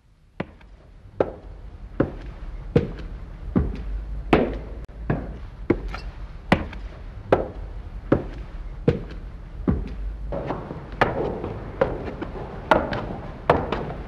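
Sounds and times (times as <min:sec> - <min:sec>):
low steady hum: 0:00.0 - 0:14.0
hard-soled footsteps climbing stairs: 0:00.4 - 0:14.0.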